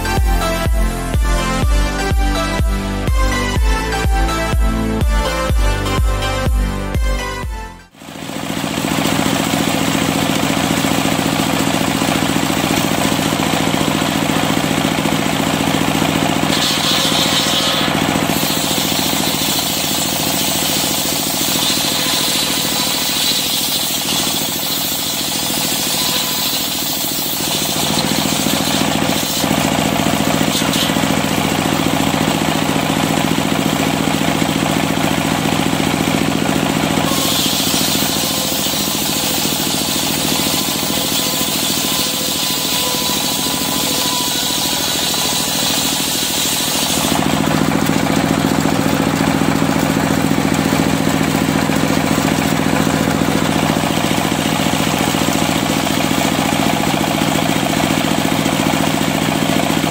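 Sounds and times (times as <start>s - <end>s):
steady engine hum: 0.0s - 59.9s
circular saw ripping wood: 8.4s - 59.9s
saw blade cutting hiss: 16.5s - 31.3s, 37.1s - 47.2s.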